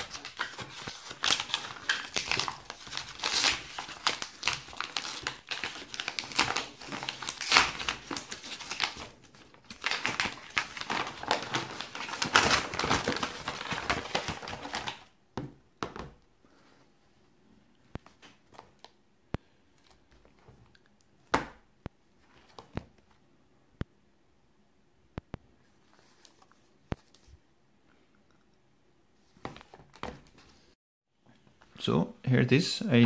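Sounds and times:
paper mailer crinkling: 0.0 - 15.1.

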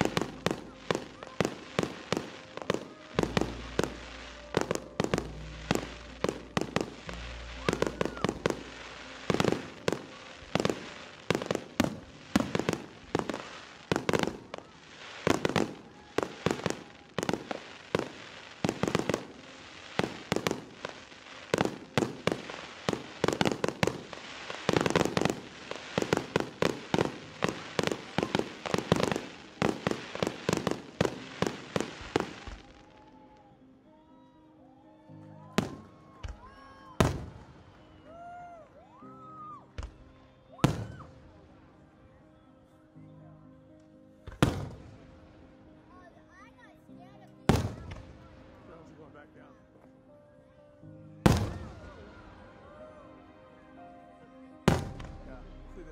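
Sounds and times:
fireworks bangs: 0.0 - 33.1, 35.6 - 37.7, 40.6 - 41.4, 44.3 - 45.0, 47.5 - 48.9, 51.2 - 52.2, 54.7 - 55.9
music: 0.0 - 55.9.

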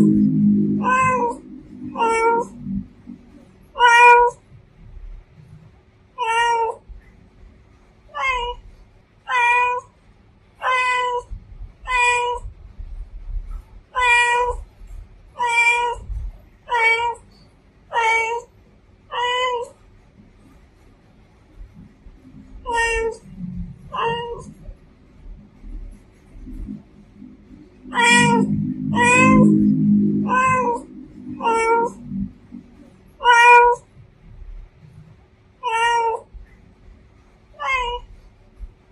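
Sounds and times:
cat meowing: 0.0 - 4.4, 6.2 - 6.8, 8.1 - 8.7, 9.3 - 9.9, 10.6 - 11.3, 11.9 - 12.5, 13.9 - 14.7, 15.4 - 16.1, 16.7 - 17.2, 17.9 - 18.5, 19.1 - 19.8, 22.6 - 24.6, 27.8 - 32.1, 33.2 - 33.9, 35.6 - 36.3, 37.6 - 38.1.

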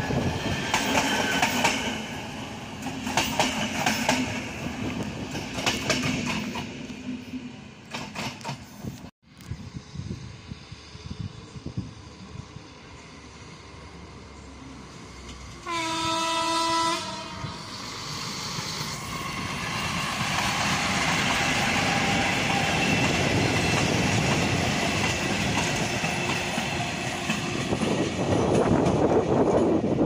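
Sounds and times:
train engines and wheels on rails: 0.0 - 30.0
train horn blast: 15.6 - 17.7.

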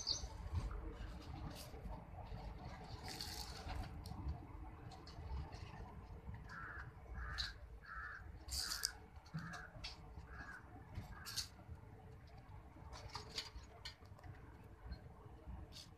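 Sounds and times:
crow cawing: 6.5 - 11.5.

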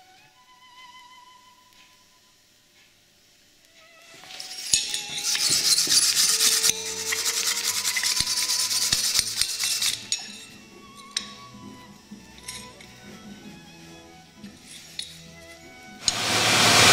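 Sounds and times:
hand rubbing steel axe head: 4.1 - 16.2.

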